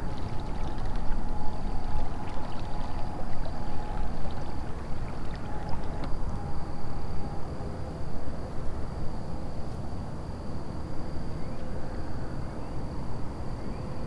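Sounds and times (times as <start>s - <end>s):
water lapping along kayak hull: 0.0s - 6.5s
steady low rumble: 0.0s - 7.6s
faint high whine: 0.0s - 14.0s.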